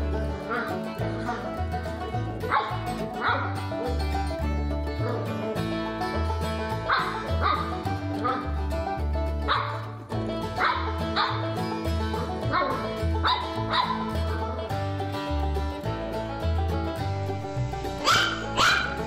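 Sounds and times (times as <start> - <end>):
background music with bass beat: 0.0 - 19.0
puppy barking and yipping: 2.4 - 3.5, 6.8 - 8.5, 9.5 - 9.8, 10.6 - 11.4, 12.5 - 14.1, 17.4 - 19.0.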